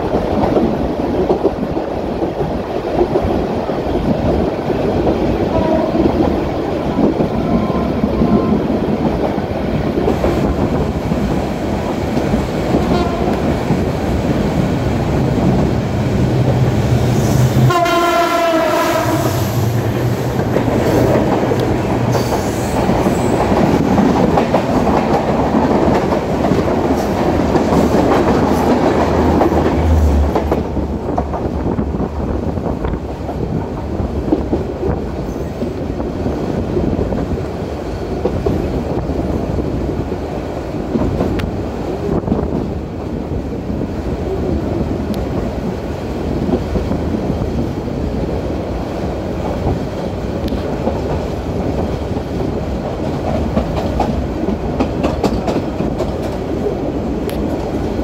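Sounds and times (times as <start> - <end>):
train rumbling past: 0.0 - 58.0
train horn: 5.5 - 6.2, 12.7 - 13.5, 17.6 - 19.5.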